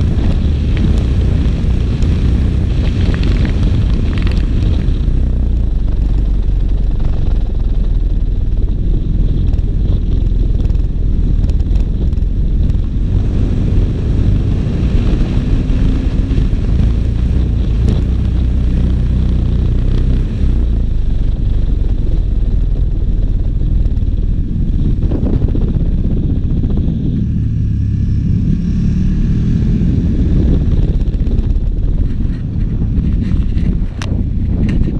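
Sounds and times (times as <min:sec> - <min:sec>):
motorcycle engine at road speed: 0:00.0 - 0:34.9.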